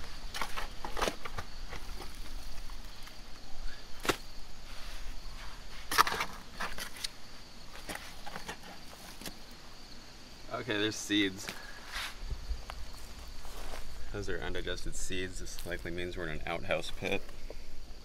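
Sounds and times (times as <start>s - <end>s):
faint insect hum: 0.0s - 18.0s
shovel striking and scraping soil: 0.2s - 3.2s, 3.9s - 9.4s.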